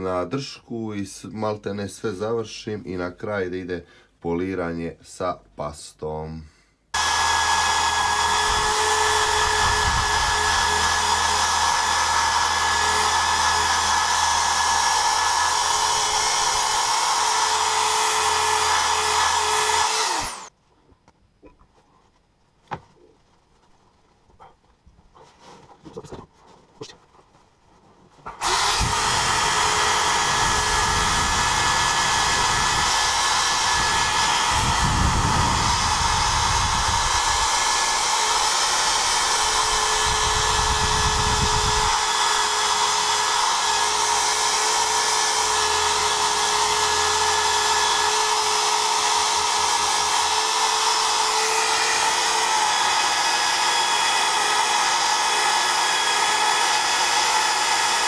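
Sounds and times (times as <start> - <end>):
drill motor whine: 7.0 - 20.5, 28.4 - 58.0.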